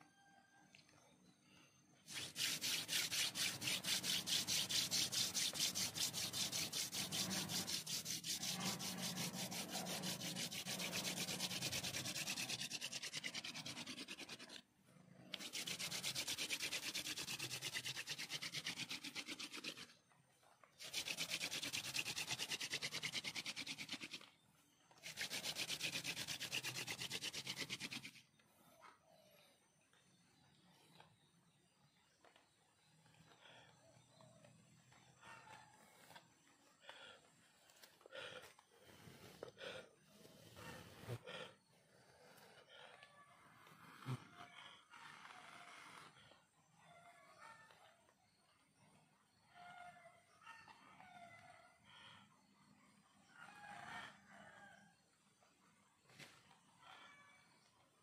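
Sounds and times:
wooden spindle squeaking on hearth: 0:02.1 - 0:19.9, 0:42.4 - 0:46.4.

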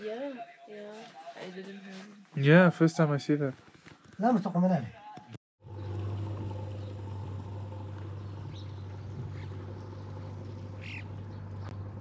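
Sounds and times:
diesel tractor engine running: 0:05.6 - 0:12.0.

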